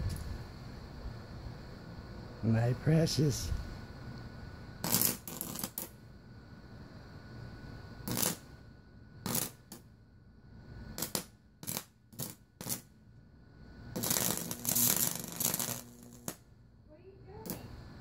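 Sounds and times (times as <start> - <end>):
bug zapper crackling snaps: 4.8 - 5.9, 8.1 - 8.4, 9.3 - 9.8, 11.0 - 12.9, 14.0 - 16.4, 17.4 - 17.7.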